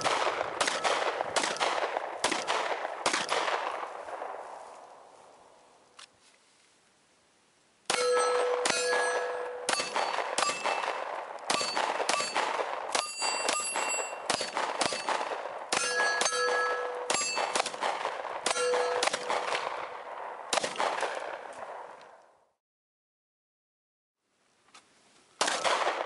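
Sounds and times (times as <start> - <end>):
pistol shots: 0.0 - 4.4, 7.9 - 21.9, 25.4 - 26.0
steel targets ringing: 7.9 - 15.2, 15.8 - 17.7, 18.5 - 19.4.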